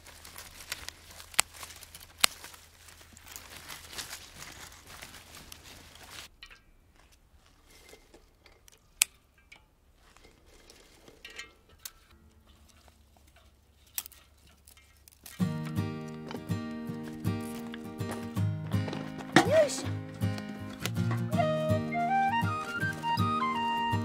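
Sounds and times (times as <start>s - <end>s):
hand shears snipping twigs: 0.0s - 7.2s, 11.7s - 23.8s
dry twigs rustling: 0.0s - 24.0s
music: 15.4s - 24.0s.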